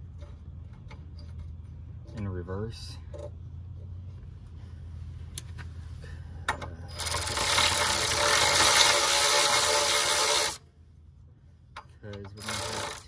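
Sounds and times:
cordless ratchet buzzing and clicking: 6.6 - 10.6, 12.2 - 13.0.

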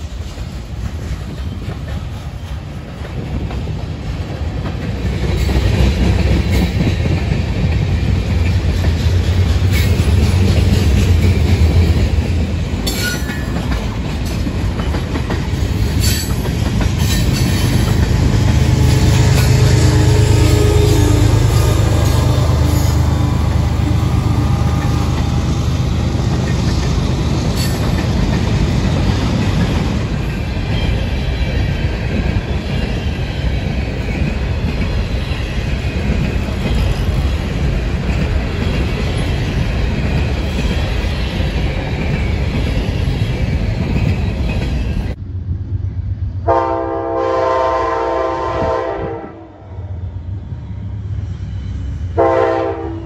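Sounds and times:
freight cars clattering on rails: 0.0 - 19.8, 21.0 - 45.2
diesel locomotive passing: 0.0 - 53.0
train air horn: 18.7 - 25.4, 46.4 - 49.7, 52.1 - 53.0.

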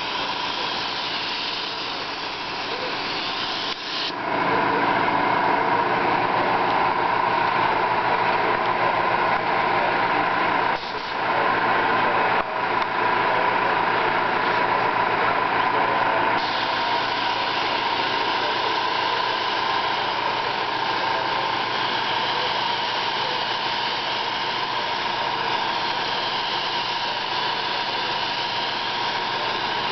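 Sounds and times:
paint spray gun hissing: 0.0 - 4.2, 10.8 - 11.2, 16.4 - 29.9
mechanical hum: 0.0 - 29.9.

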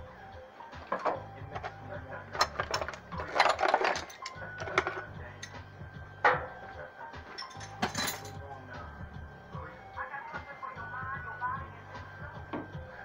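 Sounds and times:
background music: 0.0 - 13.0
metal tools clicking and clanking: 0.8 - 5.6, 7.3 - 8.4.

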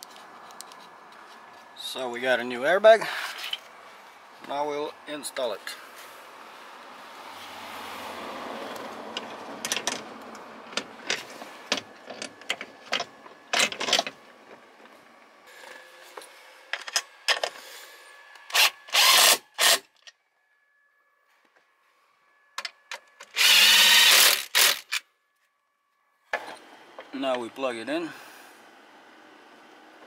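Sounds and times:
cordless power driver whirring: 18.5 - 19.8, 23.4 - 25.0.

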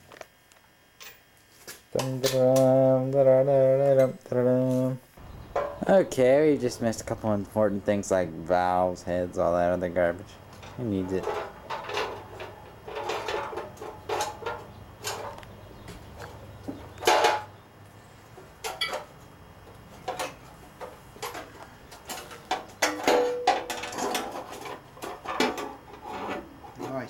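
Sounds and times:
metal parts clanking and knocking: 10.6 - 15.4, 17.0 - 17.5, 18.6 - 19.1, 21.2 - 25.8.

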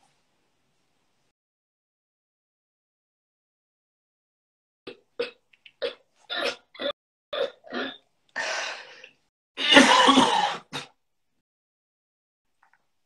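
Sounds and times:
man coughing: 9.6 - 10.9.

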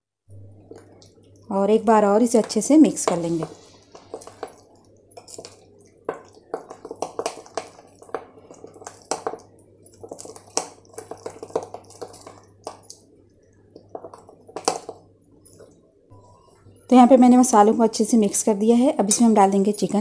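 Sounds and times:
metal spoon scraping bowl: 2.3 - 13.0
spoon knocking bowl: 2.3 - 13.0, 13.7 - 15.0
wet paste squishing: 2.4 - 15.8.

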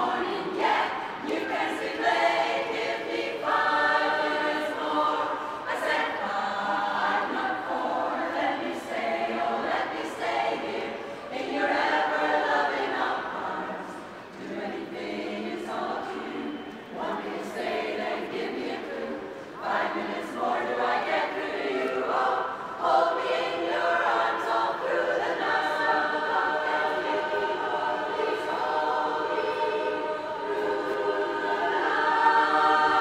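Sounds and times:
women's choir singing: 0.0 - 33.0.

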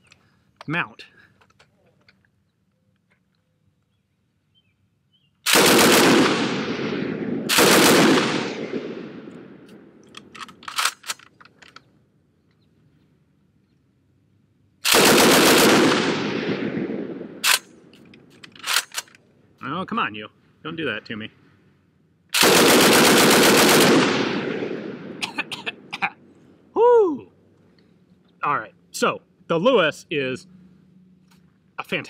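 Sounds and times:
machine gun bursts with echo: 5.5 - 9.2, 14.8 - 17.6, 22.4 - 25.2
sharp clicks: 9.3 - 11.9, 17.4 - 19.2.

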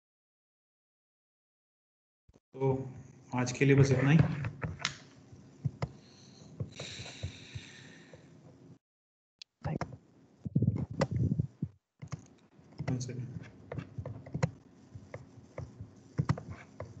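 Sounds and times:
clicks and taps: 12.0 - 13.1, 13.7 - 17.0.

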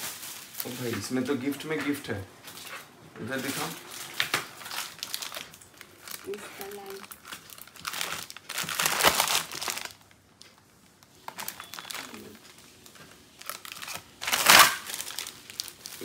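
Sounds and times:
packing material crinkling: 0.0 - 16.0.

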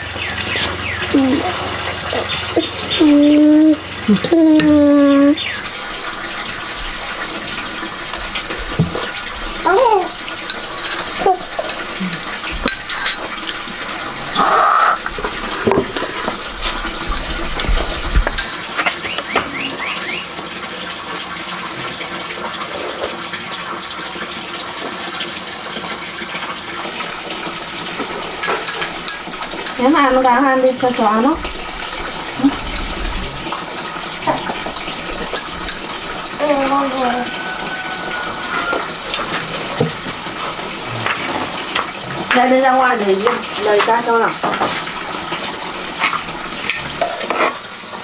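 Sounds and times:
water running from a tap: 0.0 - 48.0
dishes clinking: 4.3 - 4.9, 10.4 - 13.6, 15.6 - 19.0, 28.0 - 30.3, 32.5 - 36.3, 46.6 - 47.6.

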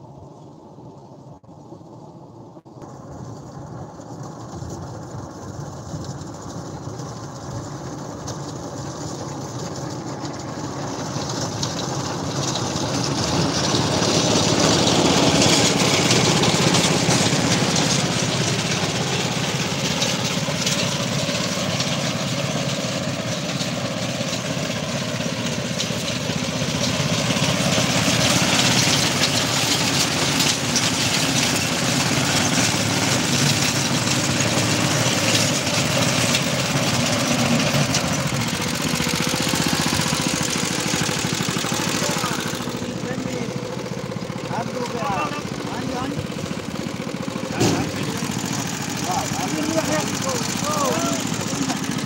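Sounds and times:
small engine running: 2.0 - 52.0.

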